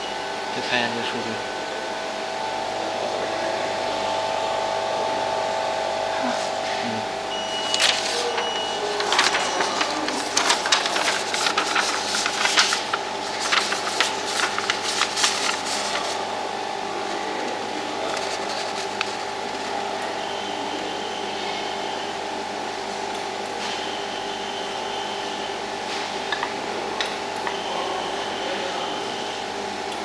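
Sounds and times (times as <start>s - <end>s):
laser machine humming: 2.1s - 22.3s.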